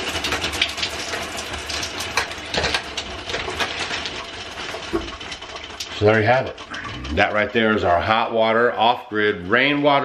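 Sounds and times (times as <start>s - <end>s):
shower water splattering: 0.0s - 8.5s.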